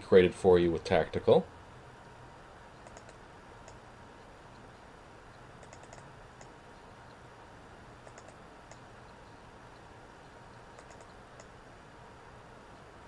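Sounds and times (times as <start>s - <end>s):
low hum and hiss: 0.0s - 13.0s
computer keyboard clicks: 2.8s - 3.8s, 5.6s - 6.5s, 8.0s - 8.8s, 10.7s - 11.5s.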